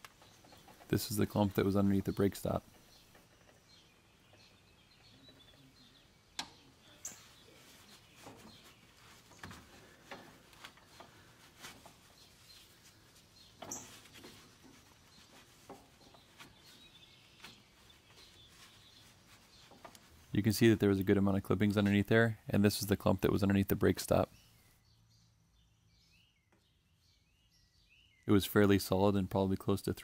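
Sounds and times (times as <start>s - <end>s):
gloved hand rustling grass clippings: 7.4s - 20.7s.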